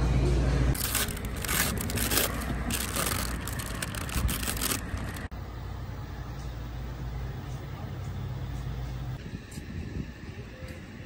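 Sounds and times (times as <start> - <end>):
paper bag crinkling: 0.8 - 5.3.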